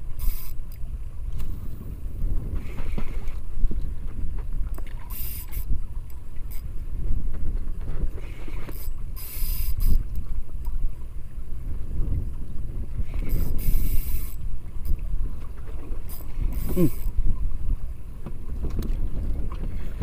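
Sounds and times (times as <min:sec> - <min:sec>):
fishing reel being cranked: 0:00.0 - 0:00.9, 0:04.7 - 0:06.7, 0:08.4 - 0:10.3, 0:13.1 - 0:15.0, 0:16.0 - 0:17.2
water around boat: 0:00.0 - 0:20.0
wind on microphone: 0:00.0 - 0:20.0.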